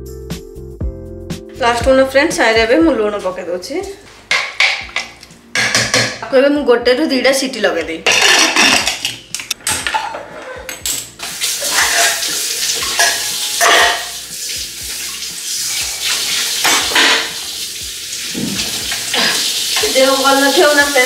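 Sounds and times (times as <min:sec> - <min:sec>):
metal pan clanking against sink: 0:04.3 - 0:06.3, 0:08.0 - 0:14.2, 0:16.6 - 0:17.4
metal lid clinking: 0:08.1 - 0:14.1
tap running into sink: 0:10.9 - 0:20.1.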